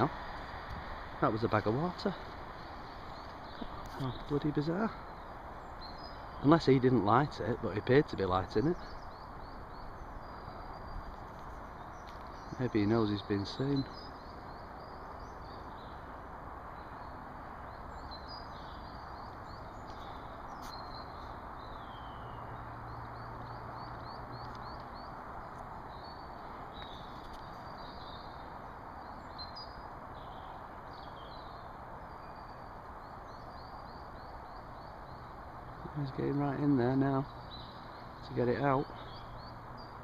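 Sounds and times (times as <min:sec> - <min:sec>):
outdoor hiss: 0:00.0 - 0:08.8
small birds chirping: 0:00.0 - 0:40.0.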